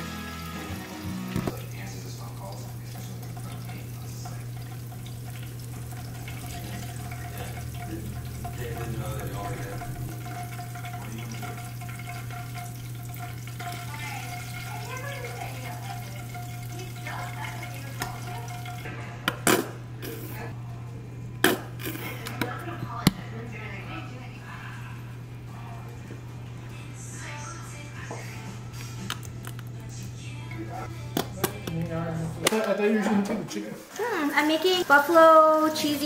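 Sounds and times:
food sizzling in hot oil: 0.0s - 18.9s, 33.8s - 36.0s
low hum: 2.6s - 19.2s.

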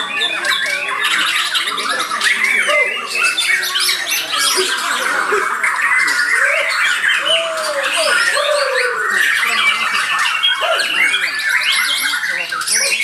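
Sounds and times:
many birds singing: 0.0s - 13.0s.

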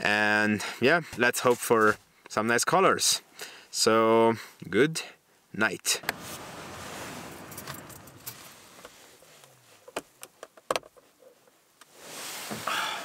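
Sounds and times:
nylon sleeping bag rustling: 6.1s - 9.8s, 11.9s - 13.0s.

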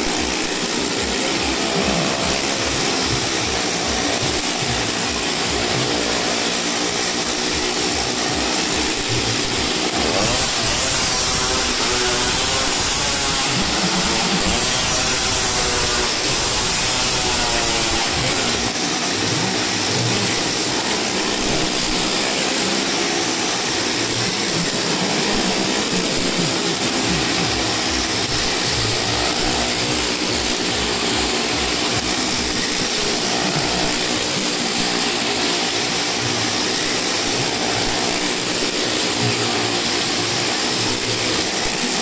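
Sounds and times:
car engines running hard: 0.0s - 10.9s
motorcycle engine running hard: 0.0s - 42.0s.

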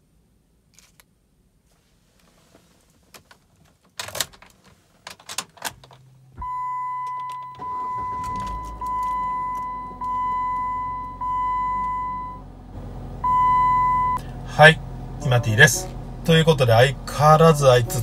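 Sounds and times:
car engine cranking and idling: 2.0s - 18.0s
ignition hum: 2.2s - 18.0s
key clicking into ignition: 3.9s - 6.1s, 6.9s - 9.7s
seatbelt warning chime: 6.4s - 12.5s, 13.2s - 14.2s.

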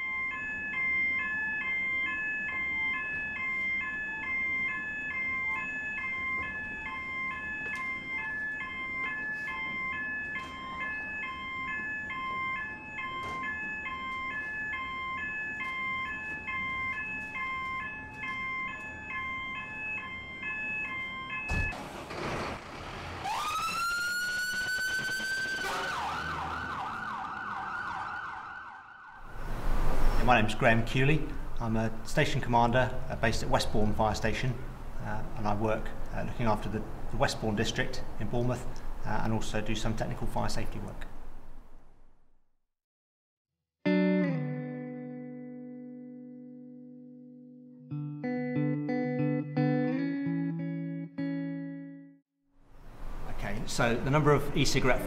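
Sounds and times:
electronic two-tone alarm: 0.0s - 21.8s, 23.2s - 28.5s
fire engine siren: 0.0s - 30.2s.

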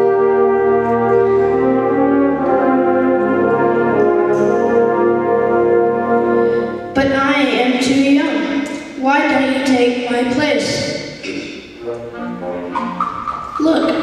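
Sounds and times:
brass band held chords: 0.0s - 7.0s, 11.2s - 13.2s.

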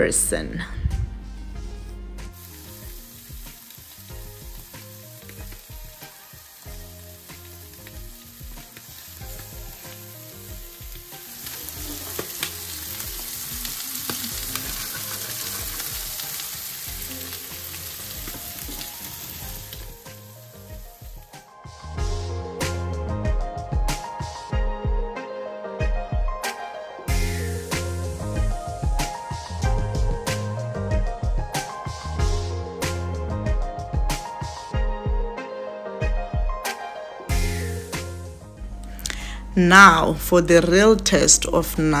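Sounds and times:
fish sizzling in a pan: 2.3s - 21.4s, 27.1s - 30.5s, 37.3s - 38.2s.

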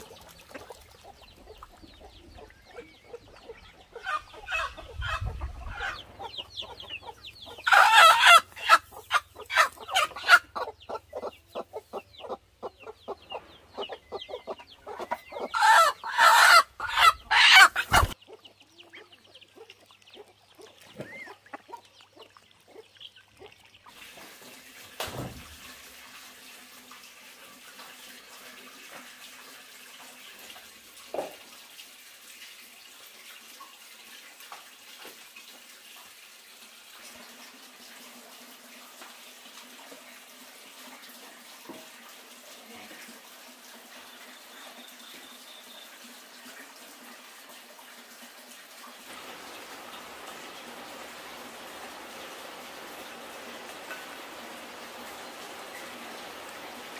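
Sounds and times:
chickens clucking and squawking: 0.0s - 23.9s
water running from a tap: 23.4s - 56.9s.

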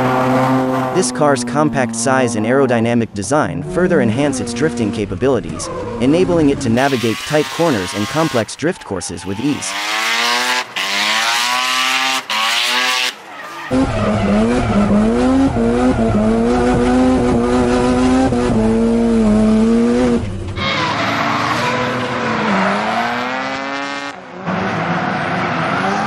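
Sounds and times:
drift car engine revving: 0.0s - 26.0s
spinning tyres hissing and squealing: 5.5s - 16.8s, 20.6s - 23.2s.

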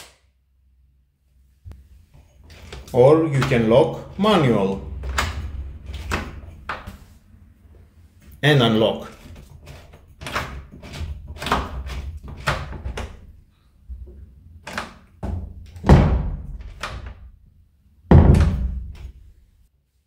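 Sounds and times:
door lock clicks and knocks: 4.8s - 7.0s, 9.2s - 13.3s, 14.6s - 17.3s, 18.1s - 19.2s
heavy thunks: 15.2s - 17.3s, 18.1s - 19.2s.

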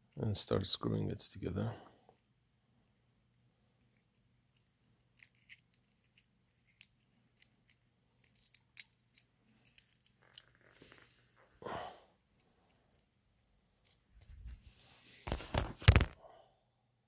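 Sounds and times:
small metallic clicks: 5.2s - 10.6s.

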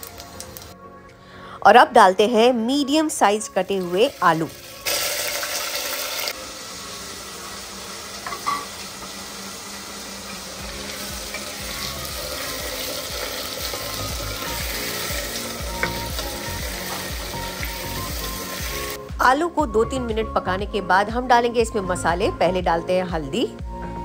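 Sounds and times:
potatoes sizzling in oil: 3.6s - 19.0s.

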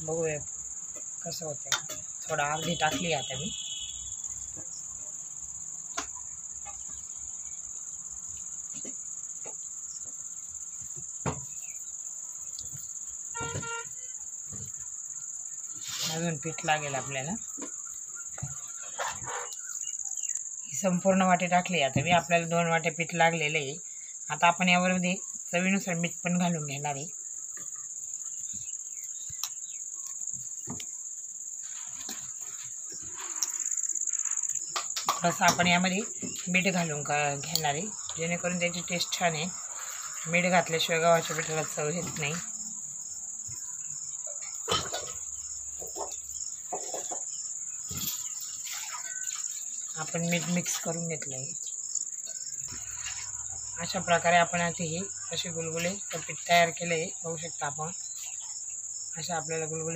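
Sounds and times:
crickets chirping: 0.0s - 59.9s.

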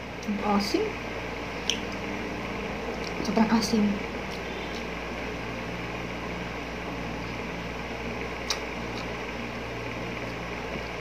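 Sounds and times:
low room hum and hiss: 0.0s - 11.0s
faint mouth clicks: 8.4s - 9.1s
chewing fruit: 8.4s - 9.2s.

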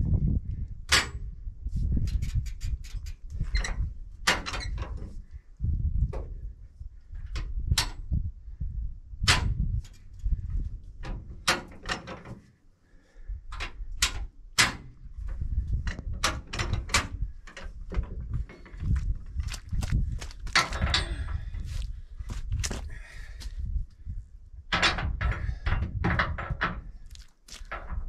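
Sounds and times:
low rumble: 0.0s - 11.5s
jack metal clanks: 20.5s - 21.4s.

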